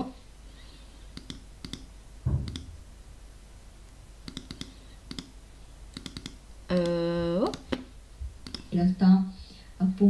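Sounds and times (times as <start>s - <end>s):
computer mouse clicks: 1.1s - 2.7s, 4.2s - 5.3s, 5.9s - 8.7s
soft low thump: 2.2s - 3.0s.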